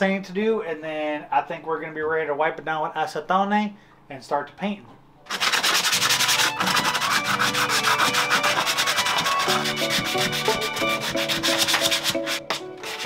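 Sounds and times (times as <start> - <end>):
sandpaper rubbing: 5.3 - 13.0
background music: 5.7 - 13.0.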